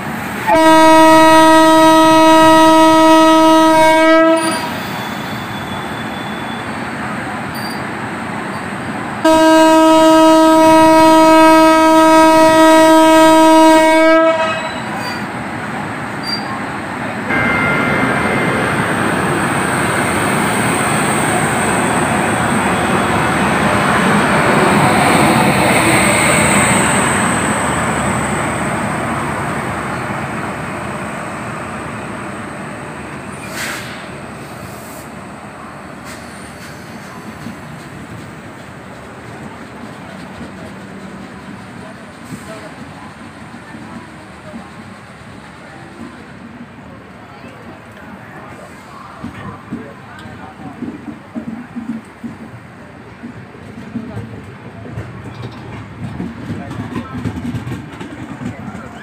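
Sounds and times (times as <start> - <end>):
train horn blast: 0.4 - 4.8, 9.2 - 15.0
train wheels rumbling clatter: 36.0 - 46.8, 47.4 - 59.0.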